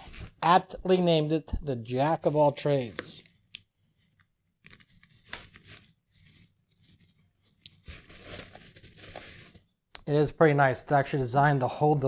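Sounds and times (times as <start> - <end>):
packaging rustling and scraping: 4.0 - 9.7.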